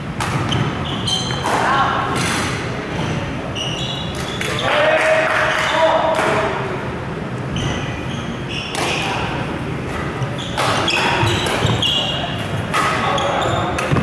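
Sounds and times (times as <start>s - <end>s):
sneakers squeaking on floor: 0.0s - 4.8s, 7.4s - 14.0s
racket striking shuttlecock: 0.2s - 0.7s, 10.6s - 11.8s.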